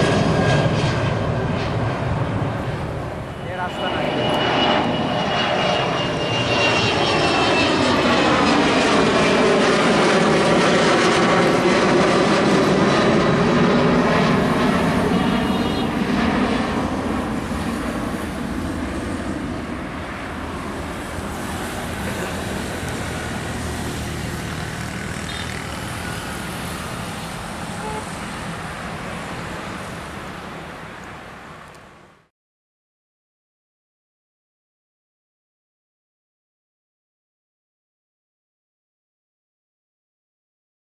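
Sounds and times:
engine whine: 0.0 - 32.3
jet airliner taking off: 0.0 - 32.3.

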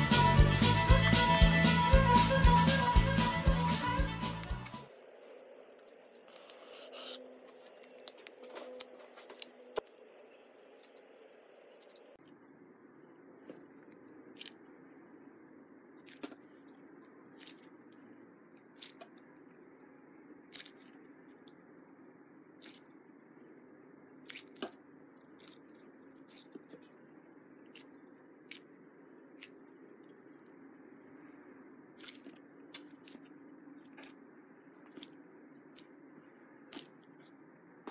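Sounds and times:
stress ball squishing: 15.9 - 21.8.

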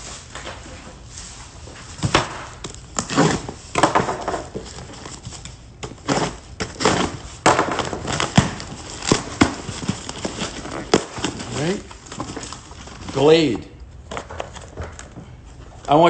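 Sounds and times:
cardboard crackling and tearing: 4.6 - 13.4.

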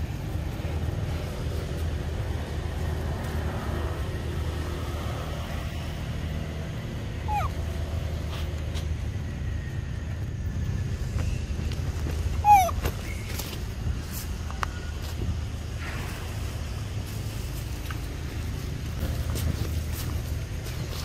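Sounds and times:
monkey squeak: 7.2 - 7.6, 12.3 - 13.5.

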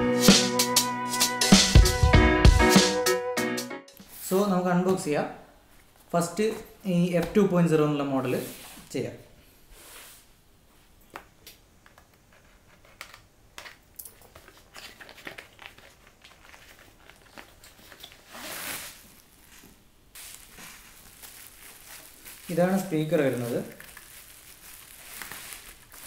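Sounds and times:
cardboard packaging handled: 12.6 - 26.0
bubble wrap crinkling: 13.6 - 26.0.

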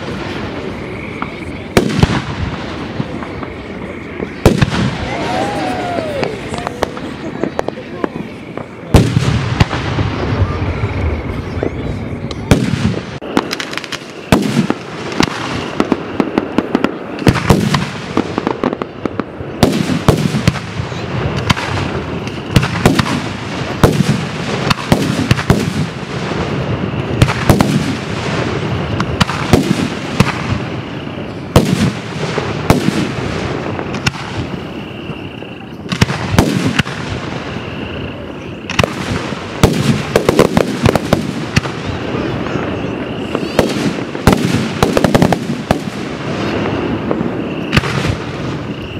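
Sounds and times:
fireworks bursting: 0.0 - 48.9.

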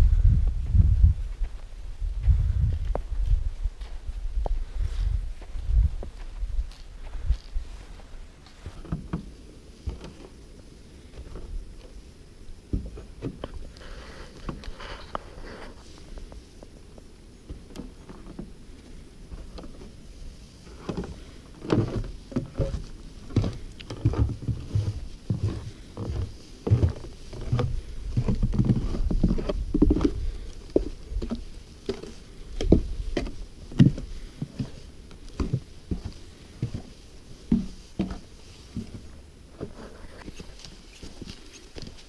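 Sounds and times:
footsteps on snowy boardwalk: 1.3 - 9.2, 17.5 - 42.0.

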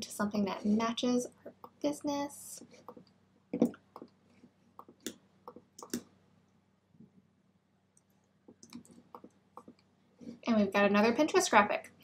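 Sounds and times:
computer mouse clicks: 4.8 - 6.1.

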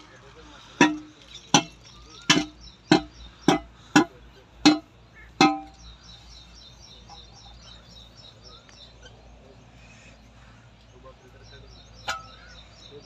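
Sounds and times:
brick striking metal pipe: 0.7 - 5.8, 12.0 - 12.4.

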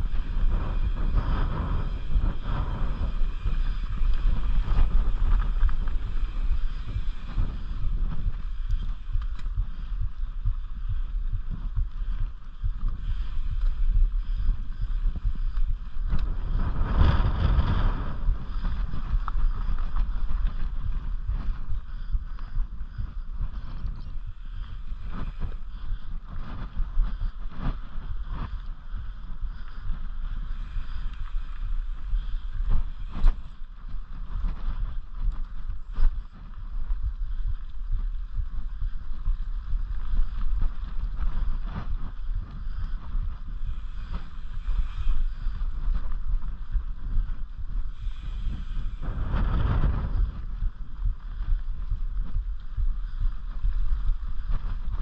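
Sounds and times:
bike rattles and clicks: 0.0 - 55.0
bike tyre rumble: 0.0 - 55.0
wind buffeting microphone: 0.0 - 55.0.

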